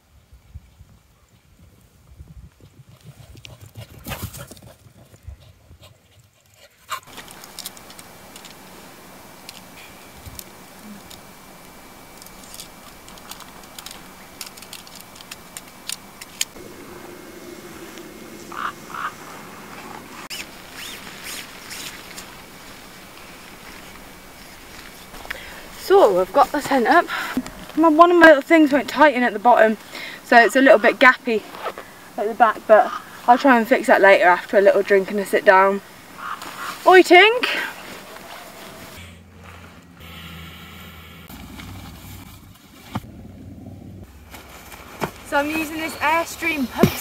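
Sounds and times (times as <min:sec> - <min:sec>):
wind rumble on microphone: 0:00.0 - 0:05.9, 0:16.5 - 0:20.7
steady outdoor hiss: 0:00.0 - 0:47.0
tent clicks and rustling: 0:02.6 - 0:16.9, 0:17.7 - 0:39.9, 0:41.3 - 0:43.3, 0:44.0 - 0:47.0.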